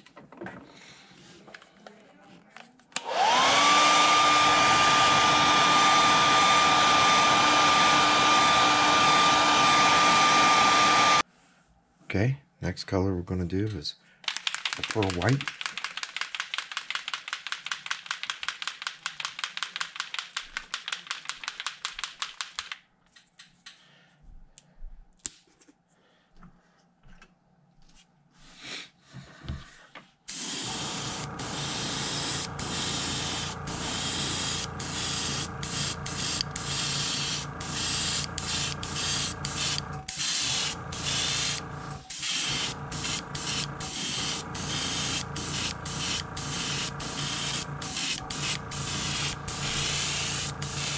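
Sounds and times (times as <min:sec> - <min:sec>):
motor hum: 0:03.0 - 0:11.2, 0:30.4 - 0:50.9
airbrush spraying hiss: 0:30.3 - 0:50.9
rapid pulsing hiss: 0:30.3 - 0:50.9.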